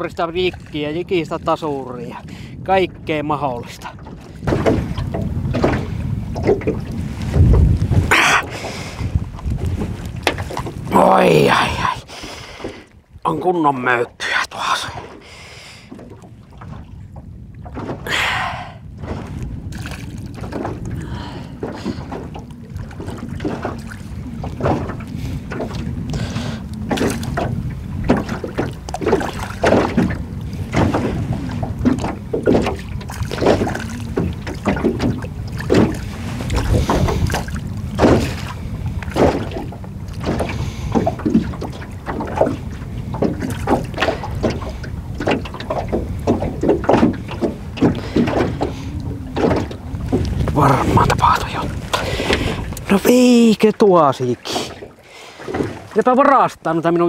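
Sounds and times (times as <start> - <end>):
low wind rumble: 0.0 - 57.0
waves slapping boat hull: 0.0 - 57.0.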